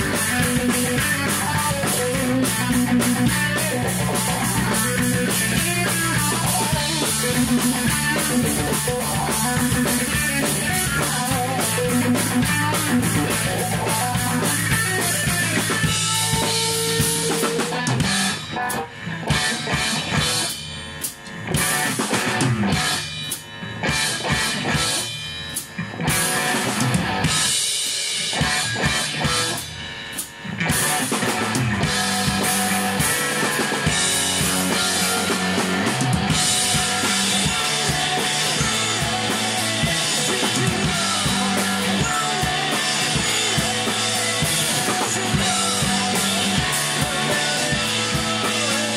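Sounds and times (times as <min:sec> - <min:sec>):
rock band playing live: 0:00.0 - 0:48.9
band accented hits: 0:28.3 - 0:48.9.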